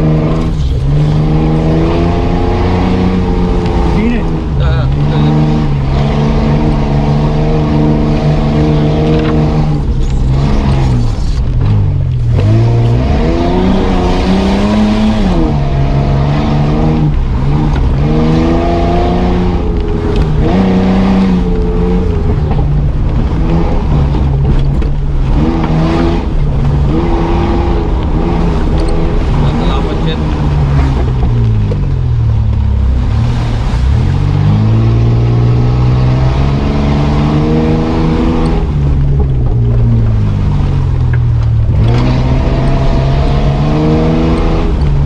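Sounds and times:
vehicle engine revving from cabin: 0.0 - 45.0.

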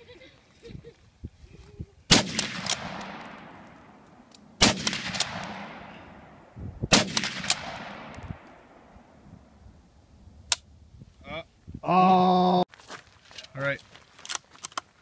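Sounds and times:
rifle shots with echo: 2.1 - 9.2.

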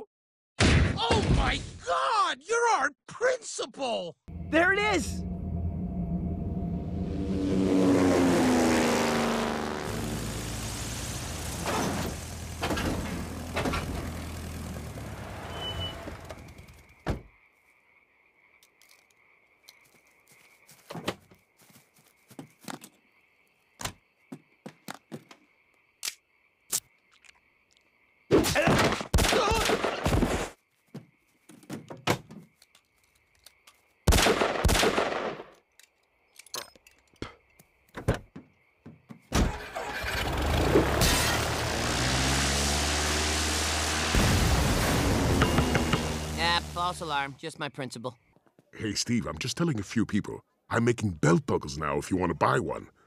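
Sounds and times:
loud rumbling ringing sound: 4.3 - 8.4
rough bursts of noise: 4.3 - 16.4, 39.9 - 47.1.

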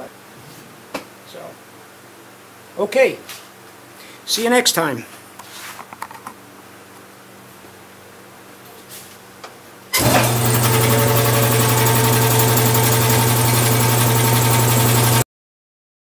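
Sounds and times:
air compressor motor humming: 10.0 - 15.2.

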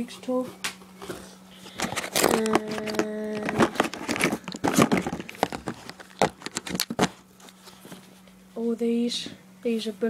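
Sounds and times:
rustling against cardboard: 1.0 - 8.2.

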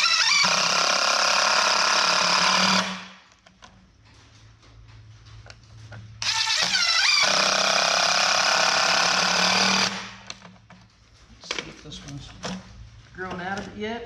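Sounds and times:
cordless driver whining: 0.0 - 3.2, 6.2 - 10.4.

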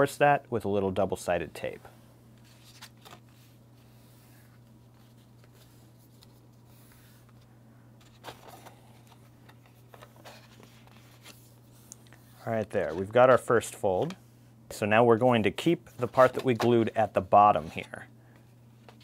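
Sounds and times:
cardstock being folded: 2.4 - 7.4.

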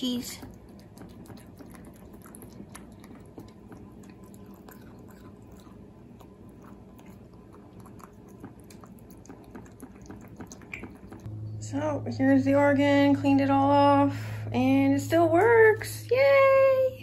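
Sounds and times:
cat chewing and crunching food: 0.0 - 11.3.

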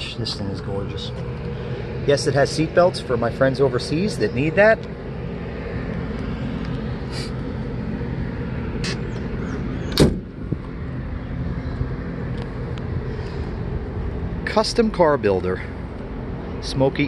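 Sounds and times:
steady low hum: 0.0 - 17.0
car door thud: 10.0 - 10.3.

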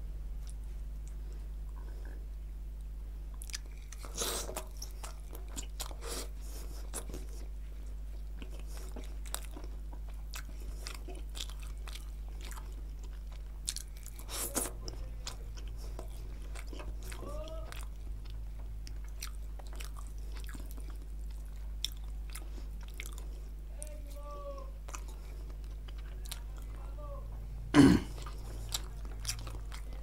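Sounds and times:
low hum: 0.0 - 4.0
man chewing food: 0.4 - 30.0.

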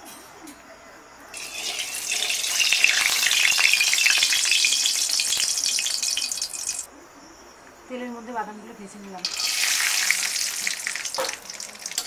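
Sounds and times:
hot oil sizzling and crackling: 1.3 - 6.9, 9.2 - 12.0.

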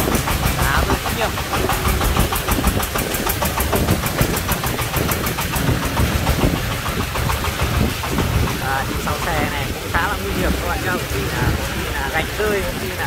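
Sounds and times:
diesel engine knocking under load: 0.0 - 13.0.

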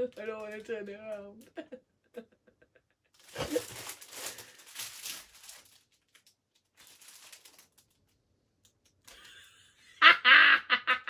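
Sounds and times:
plastic packaging crinkling: 3.2 - 9.2.

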